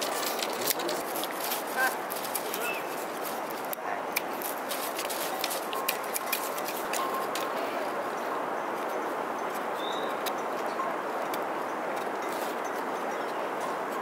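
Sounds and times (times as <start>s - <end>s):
bamboo strips clicking: 3.6s - 7.5s.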